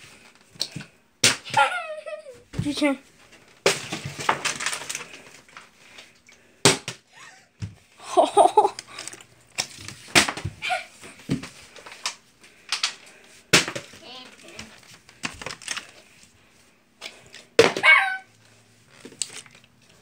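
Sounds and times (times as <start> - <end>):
person laughing: 1.5 - 2.4, 7.1 - 9.0
plastic bottle hitting wooden floor: 3.6 - 5.0, 9.6 - 10.6, 12.7 - 14.0, 17.6 - 17.9.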